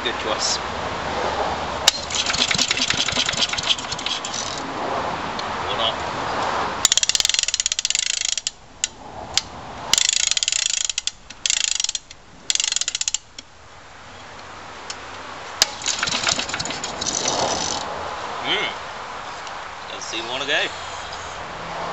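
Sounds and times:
spring starter ratchet clicking: 0:01.9 - 0:04.6, 0:06.8 - 0:13.5, 0:15.6 - 0:17.8.

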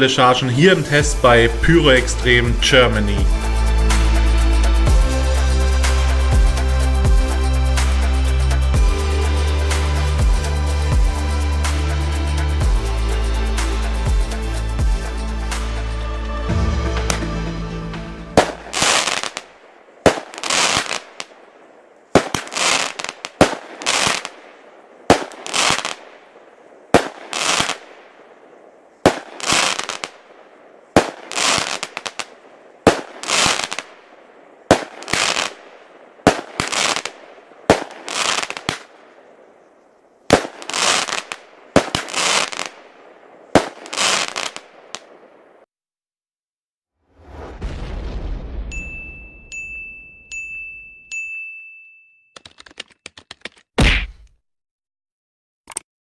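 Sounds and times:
firework launch pops: 0:17.0 - 0:17.3, 0:18.4 - 0:21.4, 0:22.2 - 0:24.4, 0:40.3 - 0:42.8, 0:53.8 - 0:54.4
firework aerial bursts: 0:18.2 - 0:21.4, 0:22.1 - 0:26.2, 0:26.8 - 0:28.3, 0:29.0 - 0:30.3, 0:30.9 - 0:33.9, 0:34.6 - 0:39.0, 0:40.3 - 0:45.2.

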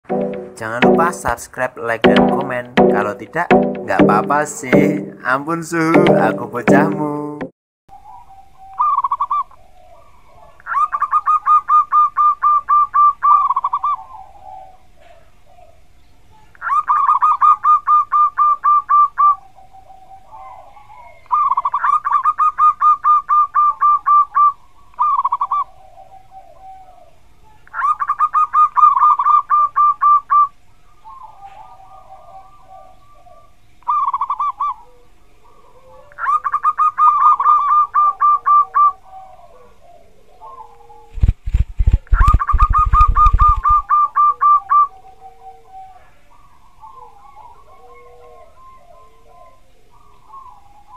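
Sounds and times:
dove cooing: 0:08.0 - 0:15.8, 0:16.7 - 0:27.2, 0:27.8 - 0:41.3, 0:42.2 - 0:50.9.

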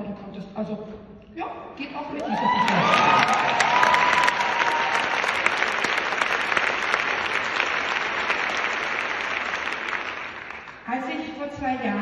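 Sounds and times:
audience applauding: 0:02.2 - 0:10.9.

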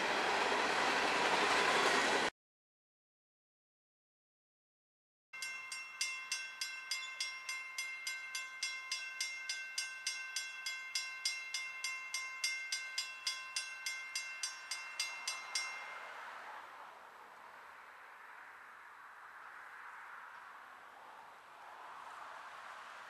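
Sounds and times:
railroad crossing bell ringing: 0:05.4 - 0:16.8.

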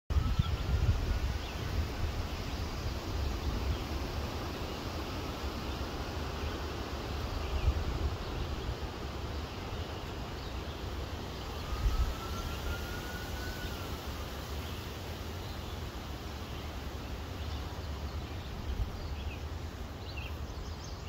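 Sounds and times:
wind on microphone: 0:00.1 - 0:04.6, 0:11.4 - 0:14.6
faint drawn-out tone: 0:11.4 - 0:14.9.

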